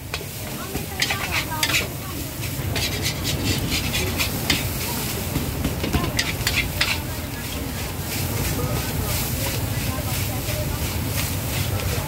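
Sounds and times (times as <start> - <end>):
metal utensils clinking and scraping: 0.1 - 4.9, 5.8 - 12.0.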